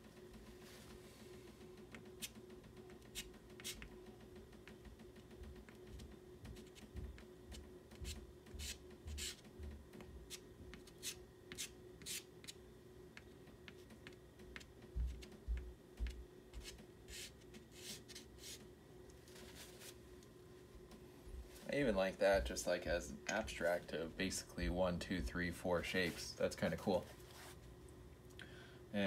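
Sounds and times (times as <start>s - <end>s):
faint steady hum: 0.0s - 29.0s
pastel stick scratching on paper: 3.0s - 3.9s, 8.0s - 9.4s, 10.3s - 12.6s, 16.0s - 18.6s.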